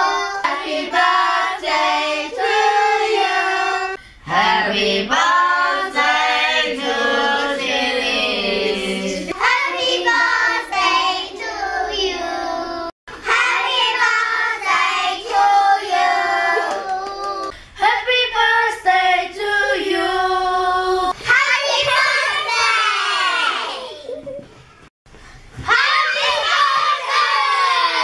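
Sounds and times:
children singing in unison: 0.0 - 17.1.

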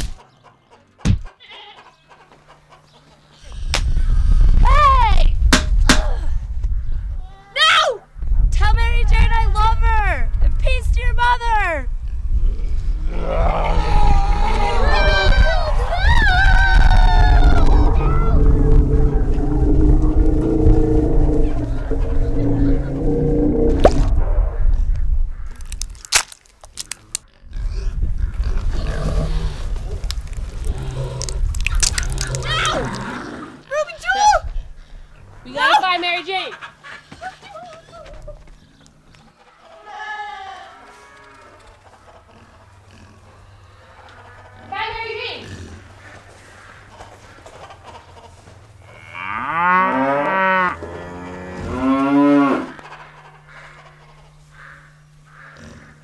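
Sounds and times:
low growling and grunting: 12.4 - 15.3, 17.0 - 24.4, 27.4 - 29.7
cow mooing: 17.4 - 24.1, 48.8 - 52.8.

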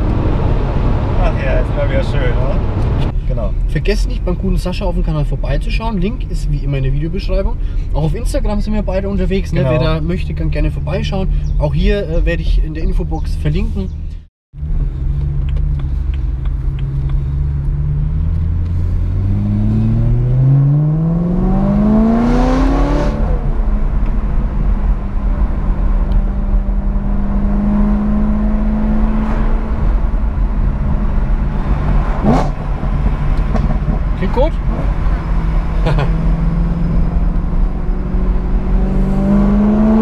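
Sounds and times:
car engine revving from inside: 15.9 - 23.6, 30.7 - 40.0.

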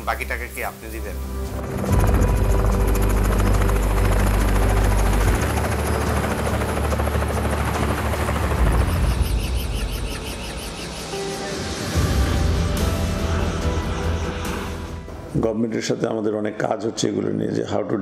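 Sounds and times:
helicopter passing overhead: 1.3 - 15.3.

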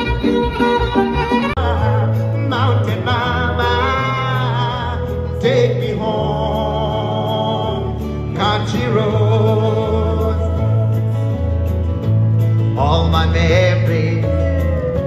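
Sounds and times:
backing track with bass: 0.0 - 15.0
person singing through speaker: 1.5 - 11.4, 12.7 - 15.0.

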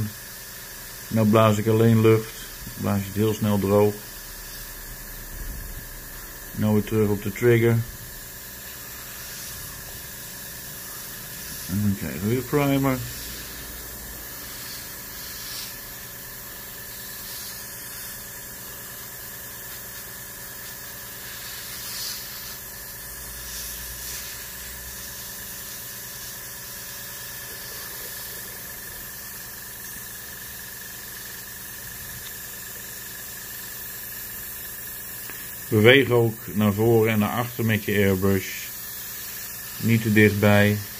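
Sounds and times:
airbrush spraying hiss: 0.0 - 40.9.

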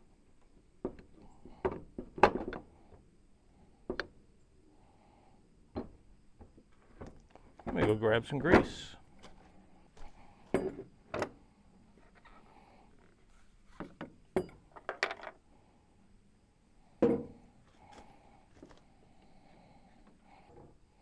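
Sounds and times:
objects knocking and clattering: 10.4 - 11.3, 13.7 - 15.4, 17.0 - 17.4
thump: 17.0 - 17.4.

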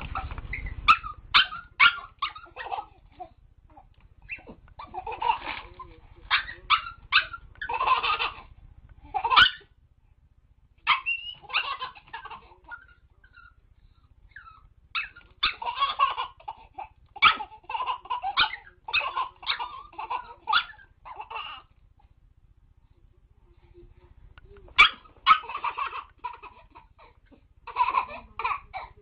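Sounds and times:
baby laughing: 0.1 - 9.7, 10.9 - 13.6, 14.4 - 21.7, 24.7 - 29.0.

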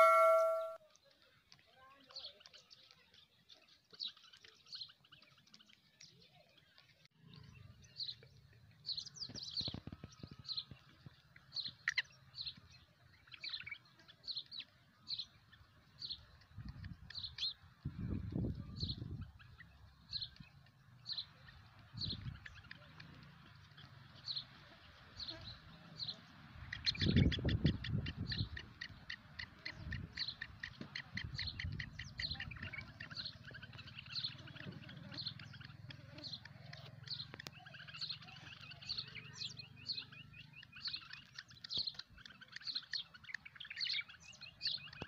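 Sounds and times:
chick chirping: 0.0 - 0.8.

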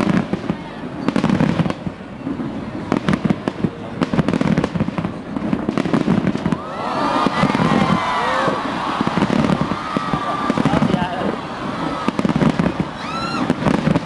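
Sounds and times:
fireworks bangs and crackles: 0.0 - 14.0
excited crowd voices: 6.5 - 14.0.

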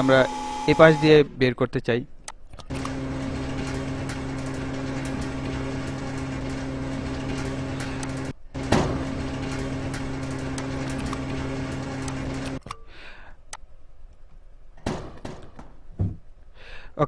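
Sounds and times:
conveyor motor hum: 0.0 - 1.4, 2.6 - 12.8, 14.4 - 16.1.

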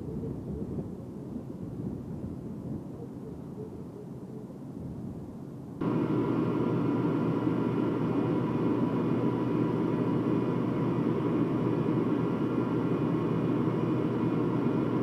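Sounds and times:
diesel engine droning: 5.8 - 15.0.

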